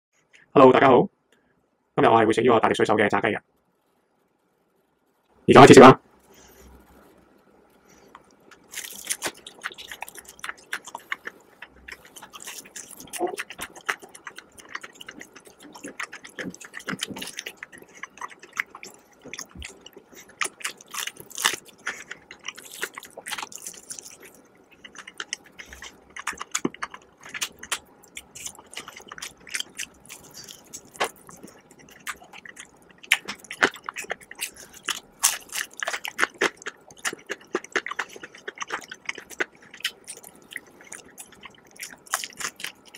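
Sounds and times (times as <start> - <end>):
chewing: 8.0 - 42.9
fried chicken crackling and crunching: 8.5 - 42.9.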